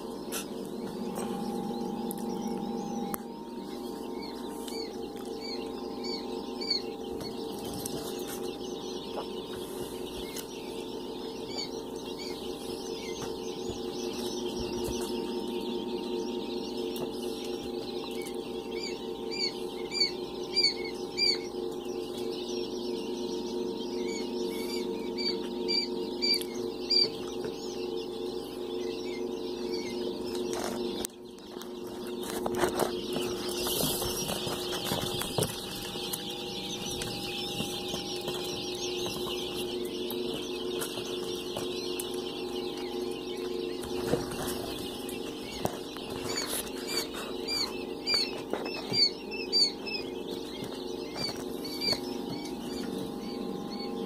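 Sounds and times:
quail chicks peeping: 0.0 - 54.0
steady low hum: 0.0 - 54.0.

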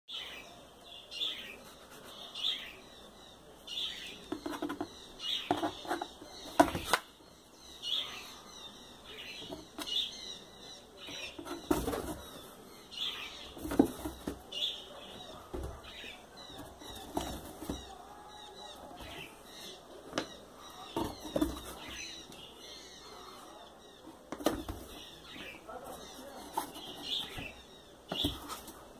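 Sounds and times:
cat scratching cardboard box: 4.0 - 7.0, 11.0 - 12.5, 13.3 - 19.3, 20.8 - 22.1, 24.2 - 28.9.

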